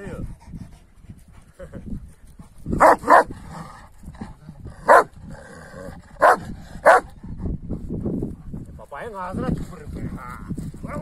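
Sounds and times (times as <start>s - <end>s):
large dog barking: 2.8s - 3.4s, 4.8s - 5.2s, 6.1s - 7.2s.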